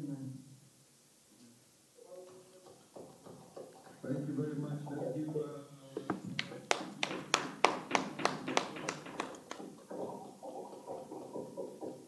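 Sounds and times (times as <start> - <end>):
hands clapping: 6.1 - 9.7.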